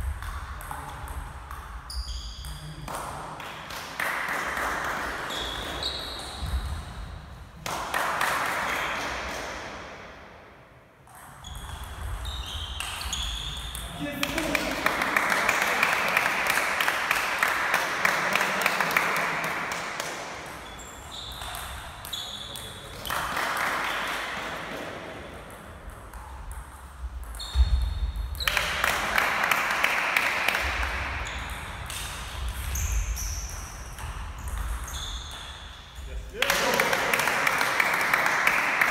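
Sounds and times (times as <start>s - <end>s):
table tennis ball hits: 34.0s - 35.6s.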